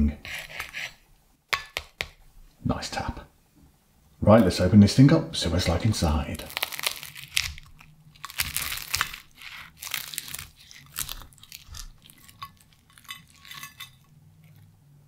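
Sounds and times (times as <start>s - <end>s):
crunches and crackles: 6.4s - 14.7s
knife and fork cutting pastry crust: 6.6s - 14.6s.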